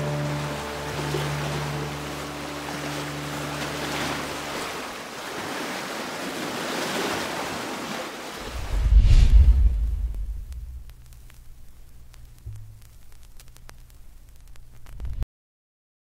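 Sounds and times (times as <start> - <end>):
sea waves washing: 0.0 - 11.6
deep rumble: 8.4 - 15.2.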